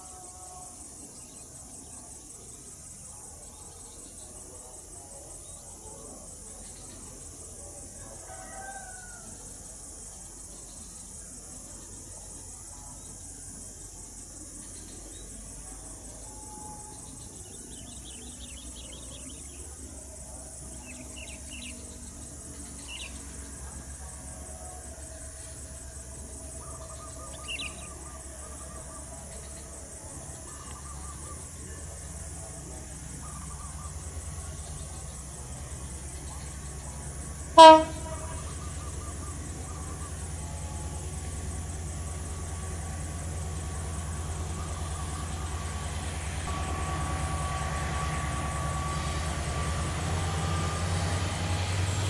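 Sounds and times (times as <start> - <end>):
insect hiss: 0.0 - 52.0
diesel locomotive rumble: 8.9 - 52.0
bird chirps: 26.6 - 29.7.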